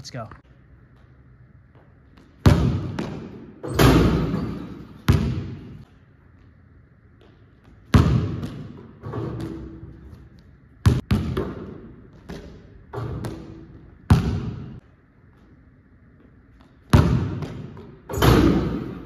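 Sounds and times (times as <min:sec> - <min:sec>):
basketball bouncing on hardwood floor: 0:01.7 - 0:05.8, 0:07.2 - 0:14.8, 0:16.5 - 0:19.0
ball hitting rim and backboard: 0:01.7 - 0:05.9, 0:07.2 - 0:14.8, 0:16.5 - 0:19.0.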